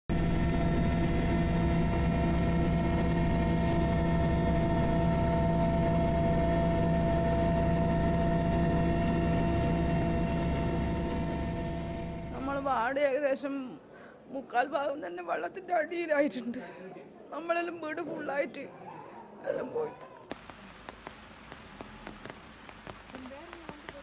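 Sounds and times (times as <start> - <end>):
helicopter engine drone: 0.1 - 12.8.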